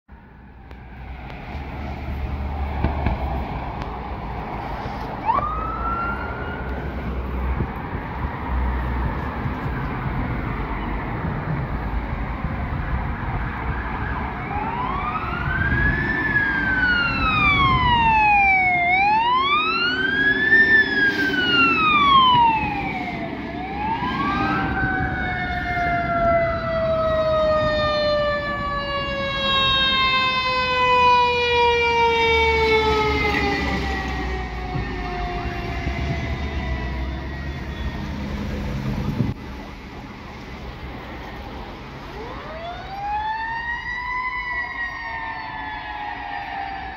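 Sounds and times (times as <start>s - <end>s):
traffic noise: 0.1s - 46.9s
fire truck siren wailing: 4.3s - 7.7s, 12.7s - 40.4s, 42.0s - 46.9s
low siren tone gliding down: 5.2s - 7.6s, 13.3s - 40.2s, 42.0s - 46.9s.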